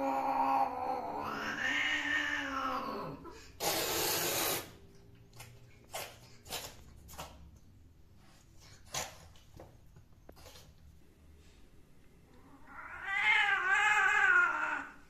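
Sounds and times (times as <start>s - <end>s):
cat yowling: 0.0s - 3.4s, 12.6s - 15.0s
cat hissing: 0.0s - 4.8s.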